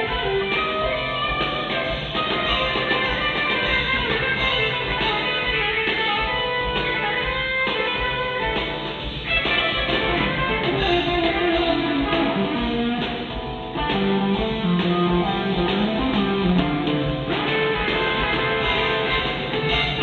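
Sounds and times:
electric guitar melody: 0:00.0 - 0:20.0
rock band playing: 0:00.0 - 0:20.0.

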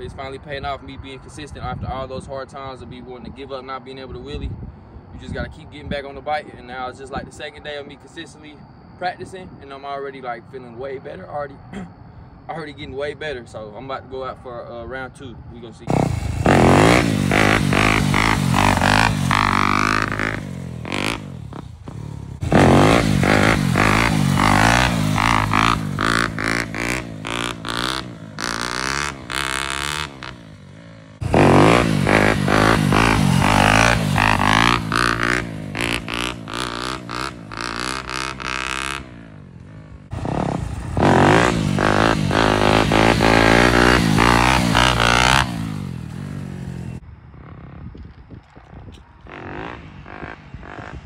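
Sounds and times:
dirt bike engine revving: 0:15.9 - 0:47.8, 0:49.3 - 0:51.0.

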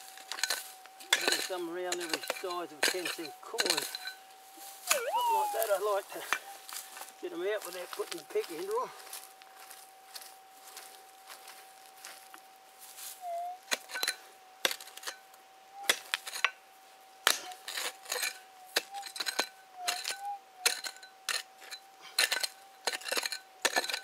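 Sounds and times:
metal detector tone: 0:01.0 - 0:08.8, 0:17.4 - 0:21.1.

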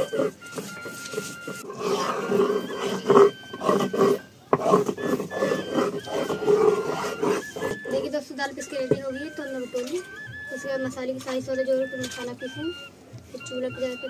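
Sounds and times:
stone rasping on grinding slab: 0:00.0 - 0:08.2.

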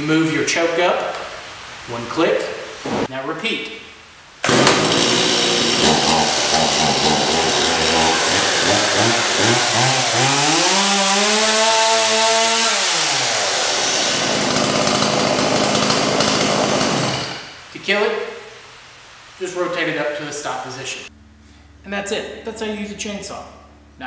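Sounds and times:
chainsaw engine running and revving: 0:04.5 - 0:17.4.

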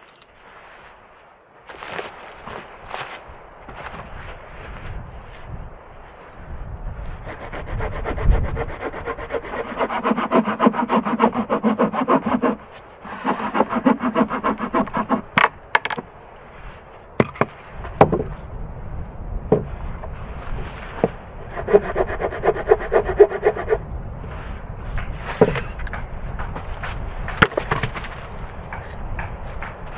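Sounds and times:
hand saw cutting log: 0:07.1 - 0:15.6, 0:20.6 - 0:23.8
sharp wooden knocks: 0:13.2 - 0:16.1, 0:17.2 - 0:18.4, 0:25.0 - 0:29.9.

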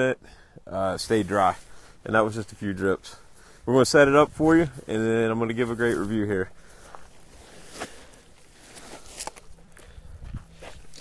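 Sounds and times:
tent fabric rustling: 0:04.3 - 0:09.8
footsteps on gravel: 0:05.5 - 0:11.0.

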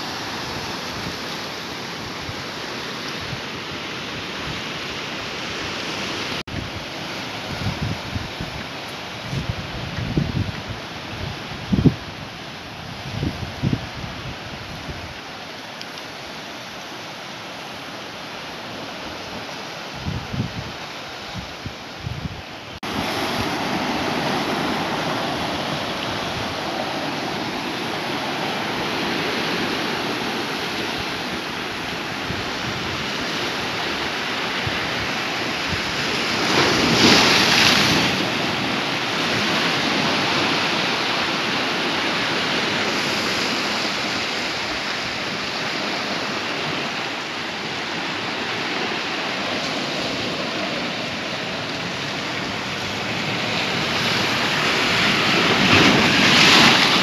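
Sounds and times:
surf breaking among boulders: 0:22.8 - 0:57.0.

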